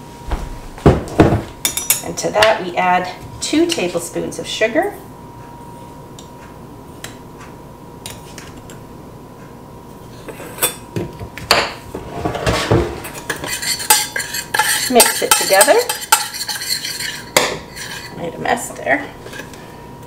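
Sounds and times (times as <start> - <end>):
metal spoon scraping saucepan: 13.1 - 18.3.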